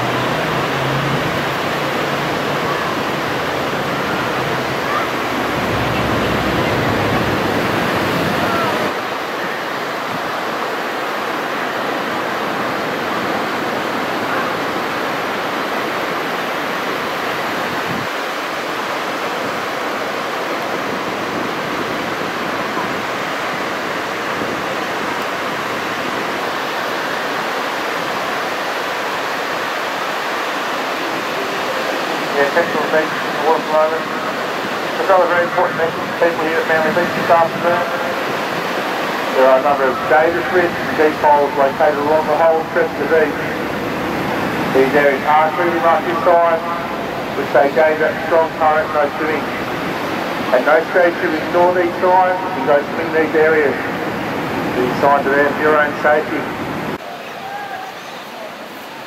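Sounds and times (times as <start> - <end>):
ocean surf breaking: 0.0 - 59.0
low rumble: 5.2 - 8.6.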